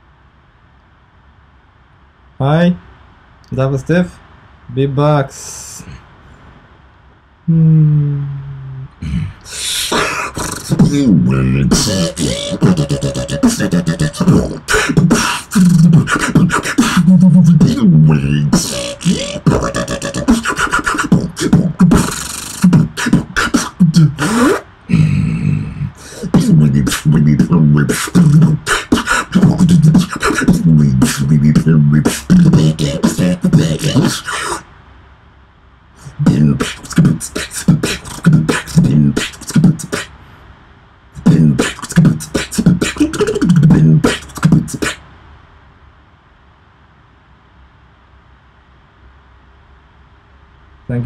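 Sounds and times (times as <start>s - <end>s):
wobbling bass tones: 7.5s - 9.4s, 10.6s - 24.2s.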